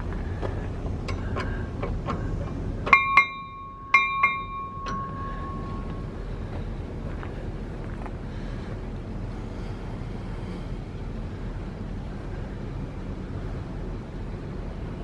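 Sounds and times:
light metallic ticks: 1.0 - 2.2
locomotive bell struck by hand: 2.9 - 6.2.

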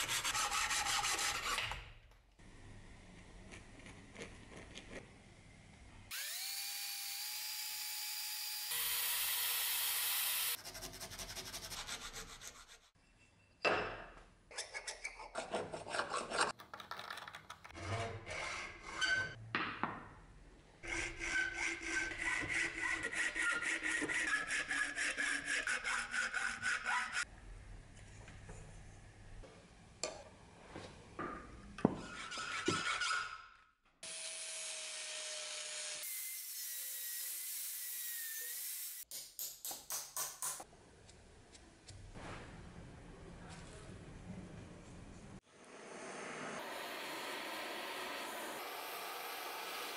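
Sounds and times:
filing: 0.0 - 1.8, 6.1 - 13.0, 14.6 - 16.5, 17.8 - 19.4, 20.8 - 27.2
power tool whining and cutting: 6.1 - 10.6, 46.5 - 49.9
rasping strokes: 20.8 - 27.2.

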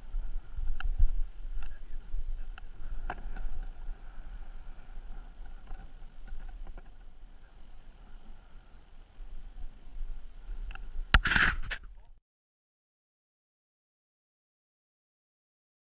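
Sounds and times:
wind buffeting a microphone: 0.0 - 12.1.

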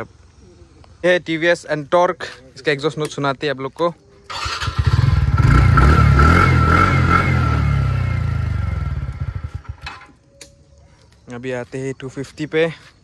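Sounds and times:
scooter engine revving: 4.3 - 9.9.

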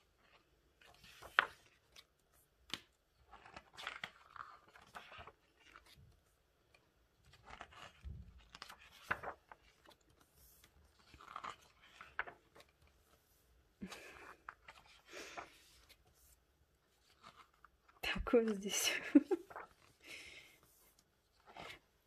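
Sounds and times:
pages turning and rustling: 0.0 - 18.6, 19.2 - 22.0
page snapping: 2.6 - 4.9.

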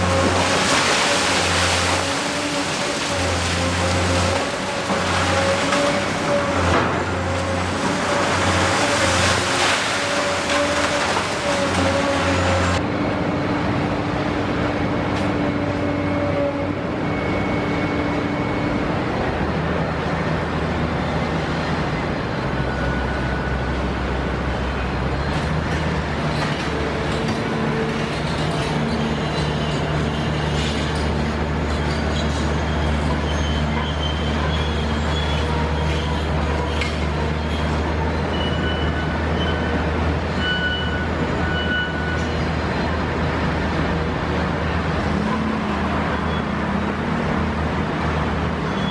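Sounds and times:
hydraulics whining: 0.0 - 13.5
excavator diesel engine: 0.0 - 48.9.

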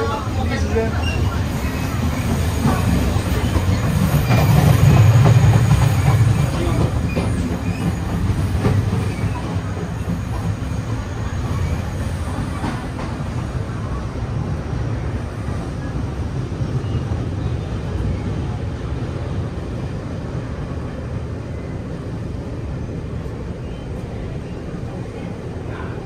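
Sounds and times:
train rumbling: 0.0 - 26.0.

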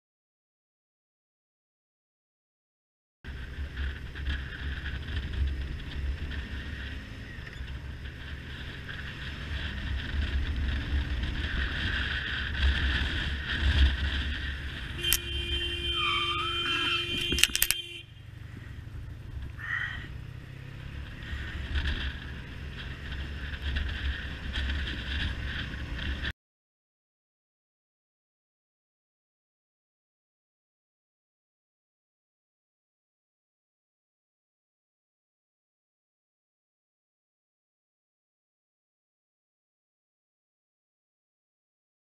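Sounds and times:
wind rumble on microphone: 3.3 - 20.1, 21.0 - 26.3
motorcycle riding: 3.3 - 26.3
tyre skidding squeal: 15.5 - 17.1
click: 17.2 - 17.8.

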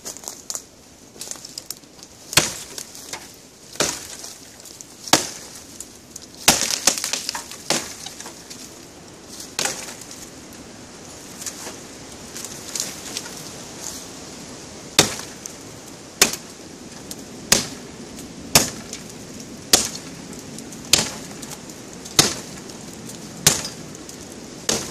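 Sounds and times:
wood and twigs crackling: 0.0 - 24.9
knife chopping wood: 2.4 - 4.3, 5.1 - 5.5, 6.4 - 8.4, 15.0 - 15.4, 16.2 - 16.5, 17.5 - 17.8, 18.5 - 19.0, 19.7 - 20.1, 20.9 - 21.2, 22.1 - 22.6, 23.4 - 23.8, 24.7 - 24.9.

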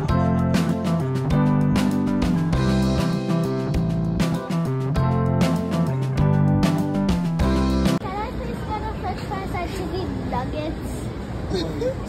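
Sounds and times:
background music with strummed guitar: 0.0 - 8.0.

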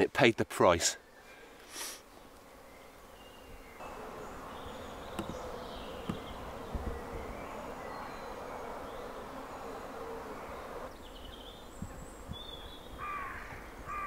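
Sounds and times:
bee buzzing: 2.2 - 10.9.

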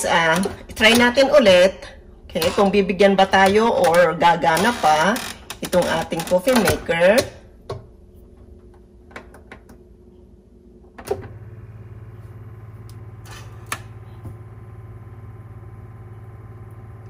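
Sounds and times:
coffee machine pump humming: 11.1 - 17.0.

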